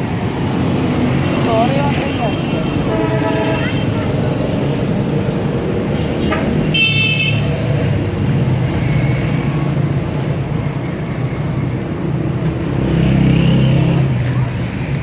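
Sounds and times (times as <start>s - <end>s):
road traffic engines: 0.0s - 15.0s
vehicle horn: 2.8s - 3.9s, 6.2s - 7.5s.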